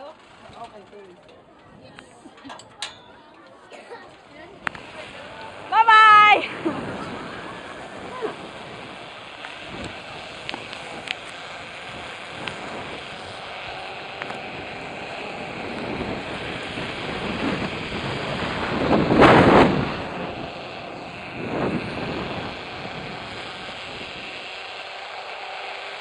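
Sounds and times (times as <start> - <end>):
wind rushing over microphone: 4.6 - 24.8.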